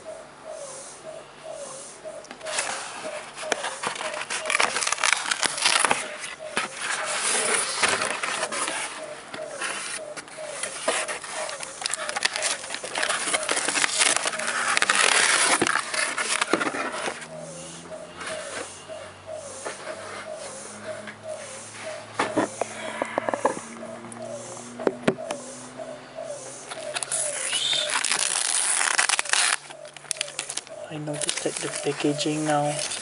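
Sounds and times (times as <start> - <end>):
cardboard envelope pulled open: 2.5 - 9.0, 10.6 - 17.3, 26.9 - 31.9.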